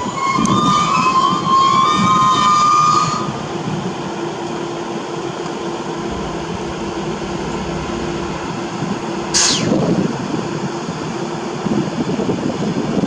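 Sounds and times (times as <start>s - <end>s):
track machines rolling on rails: 0.0s - 12.7s
faint steady hum: 5.8s - 10.5s.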